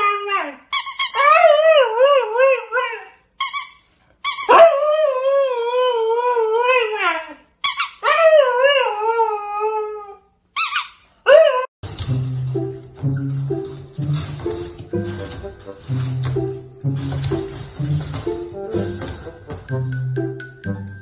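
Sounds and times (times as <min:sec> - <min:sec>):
dog yelps: 0:00.8 - 0:03.2, 0:04.3 - 0:04.9.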